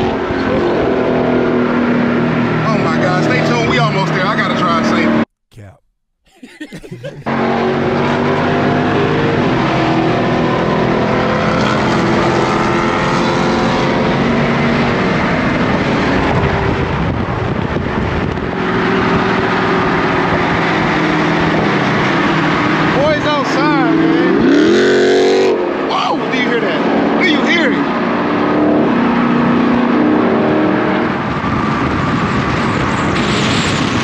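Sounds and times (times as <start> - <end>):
road and wind noise: 0.0 - 5.2, 7.2 - 34.0.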